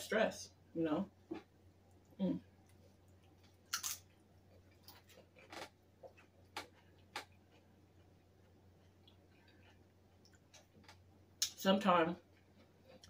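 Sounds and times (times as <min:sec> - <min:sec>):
crunching tortilla chip: 0:03.6 - 0:04.1.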